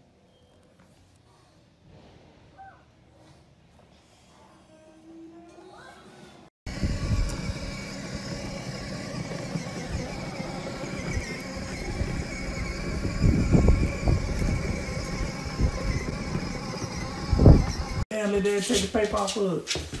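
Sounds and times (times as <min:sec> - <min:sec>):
electric motor whine: 0:06.7 - 0:18.0
wheels rumbling on concrete: 0:06.7 - 0:19.4.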